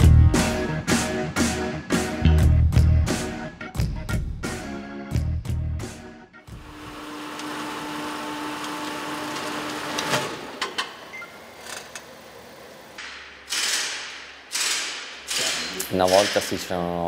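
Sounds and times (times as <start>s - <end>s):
roller test bench whirring: 6.5s - 13.0s
sharp clicks: 13.0s - 16.4s.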